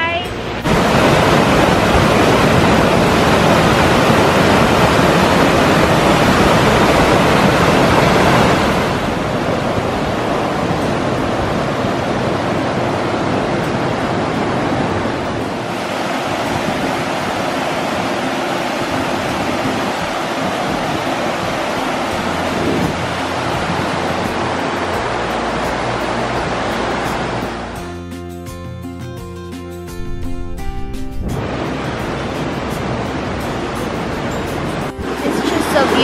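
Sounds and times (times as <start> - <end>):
stream rushing over boulders: 0.0 - 27.9, 30.0 - 36.0.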